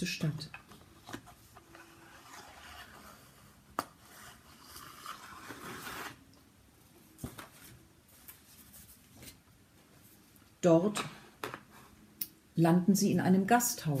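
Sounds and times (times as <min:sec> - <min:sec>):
rustling scrape: 0:01.4 - 0:03.5.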